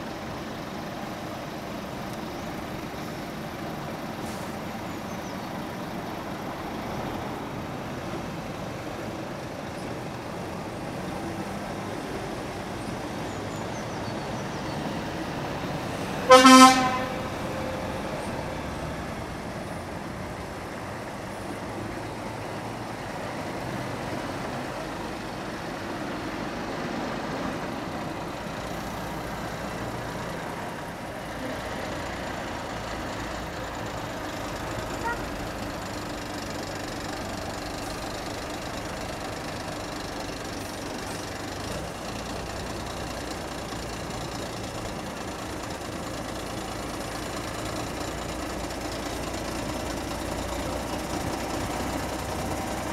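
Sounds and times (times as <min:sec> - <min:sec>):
traffic rumble: 0:00.0 - 0:52.9
truck horn blast: 0:16.2 - 0:17.6, 0:35.0 - 0:35.4.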